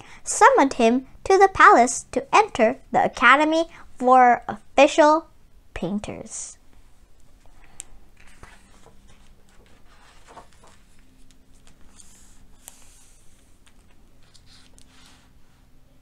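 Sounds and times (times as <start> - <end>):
hands smoothing paper pages: 7.6 - 15.7
book page turning: 7.7 - 15.3.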